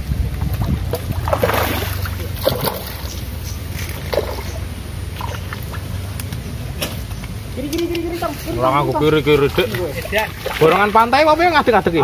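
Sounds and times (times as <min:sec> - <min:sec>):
wind rumble on microphone: 0:00.0 - 0:04.0
fish splashing water: 0:00.3 - 0:07.1, 0:07.7 - 0:11.5.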